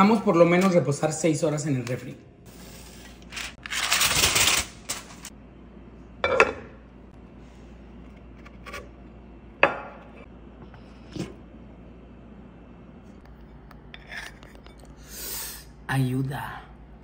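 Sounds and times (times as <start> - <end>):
aluminium foil crinkling: 3.1 - 5.3.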